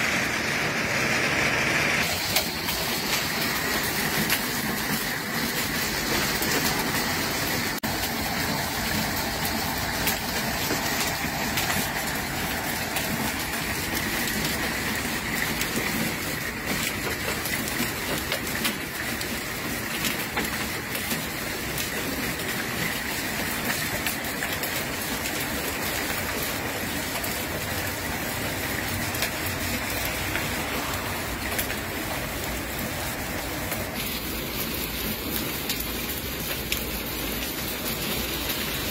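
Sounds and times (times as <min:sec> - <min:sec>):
hailstones ticking: 0:00.0 - 0:38.9
heavy rain: 0:00.0 - 0:38.9.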